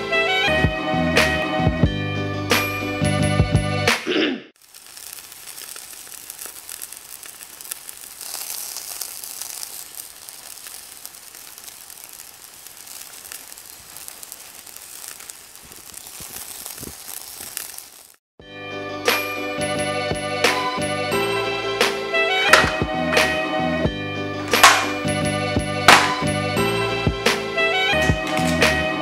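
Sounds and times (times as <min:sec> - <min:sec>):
oil sizzling in a frying pan: 0:04.6 - 0:18.2, 0:19.1 - 0:28.0.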